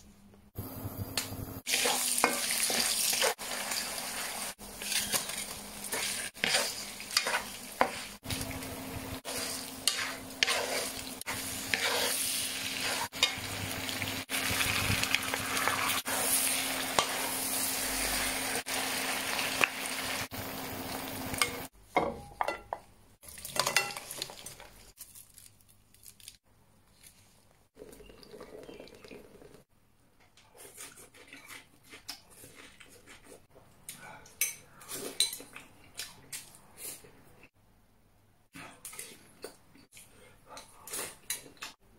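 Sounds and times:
seafood sizzling in a hot pan: 0:01.7 - 0:21.7
wooden spatula scraping: 0:04.2 - 0:13.3
dishes and utensils clinking: 0:23.4 - 0:24.5.

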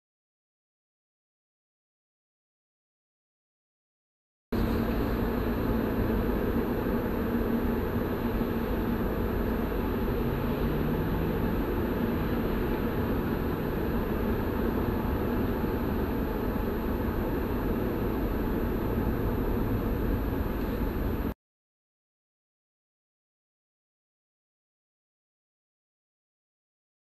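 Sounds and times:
car road noise: 0:04.6 - 0:21.4
faint engine hum: 0:04.6 - 0:21.4.

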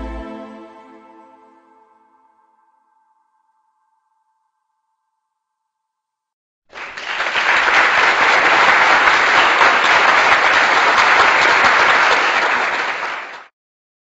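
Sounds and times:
crowd applause: 0:06.7 - 0:13.5.

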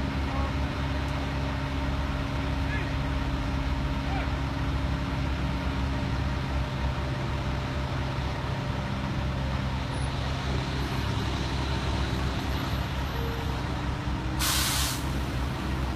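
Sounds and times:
diesel truck engine running: 0:00.0 - 0:15.9
air brakes hissing: 0:14.4 - 0:15.2.

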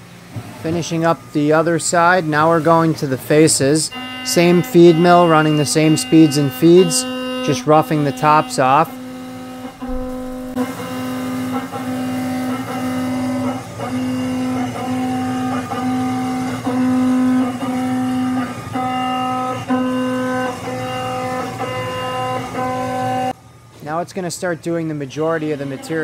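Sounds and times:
milling cutter cutting steel: 0:03.9 - 0:21.4.

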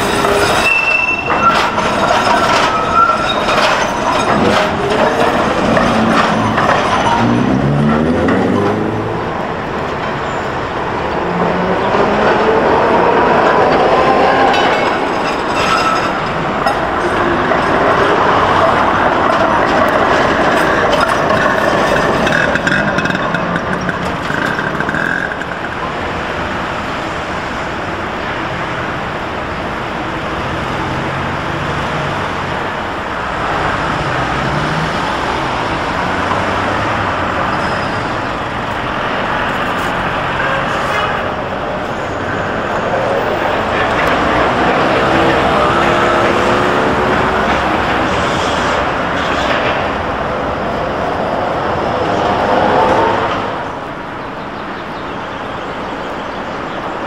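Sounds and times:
street traffic noise: 0:00.0 - 0:57.0
tram running on street track: 0:00.0 - 0:57.0.

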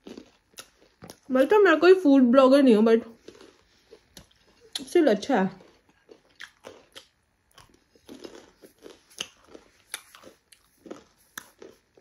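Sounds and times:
person chewing pizza: 0:00.0 - 0:01.3, 0:03.1 - 0:04.9, 0:05.5 - 0:12.0.

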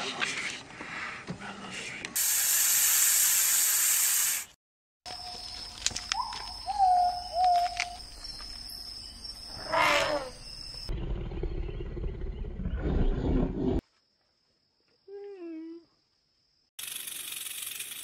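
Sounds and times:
loud steady hiss: 0:02.2 - 0:04.6.

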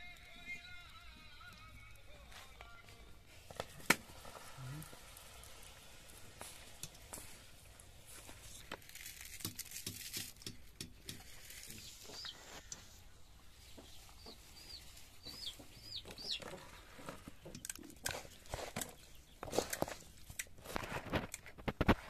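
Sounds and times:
high chick peeps: 0:09.8 - 0:13.0, 0:13.6 - 0:19.4
chickens clucking: 0:11.8 - 0:19.2.

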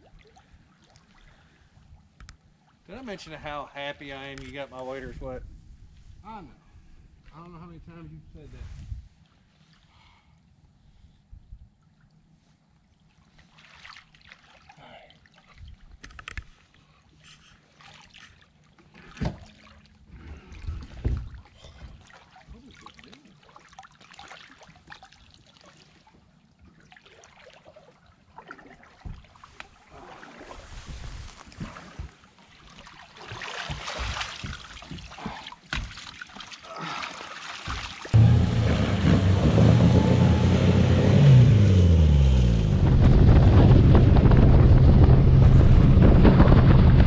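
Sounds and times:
water splashing around boat: 0:11.8 - 0:47.0
water rushing: 0:36.8 - 0:45.6.

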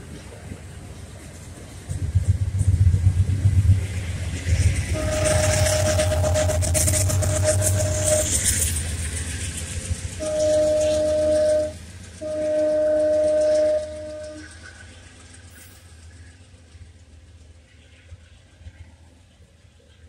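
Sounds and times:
train wheels clattering on rails: 0:00.0 - 0:20.0
train horn blasts: 0:04.6 - 0:08.8, 0:10.1 - 0:14.7.

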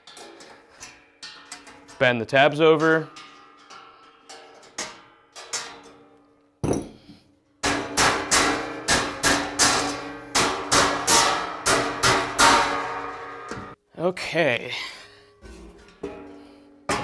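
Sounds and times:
hammer striking sheet steel: 0:07.6 - 0:13.8.

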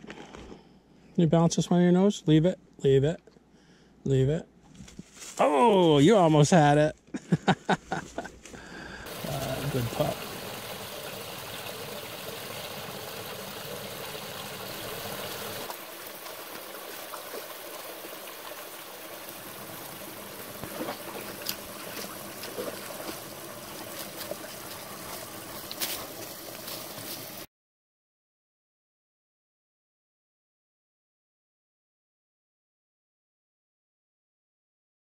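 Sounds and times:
brook trickling over rocks: 0:09.0 - 0:27.5
dog splashing and lapping water: 0:09.1 - 0:27.5.

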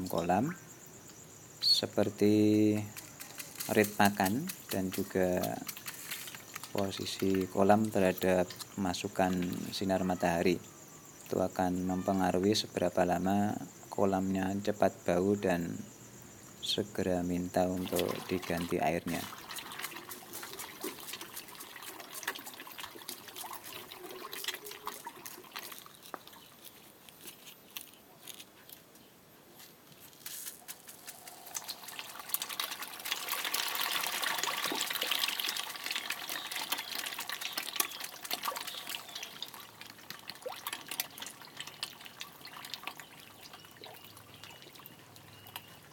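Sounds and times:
water trickling and dripping: 0:02.0 - 0:10.5, 0:17.5 - 0:26.9, 0:30.9 - 0:45.9
water splashing: 0:17.7 - 0:26.6, 0:31.1 - 0:45.9.

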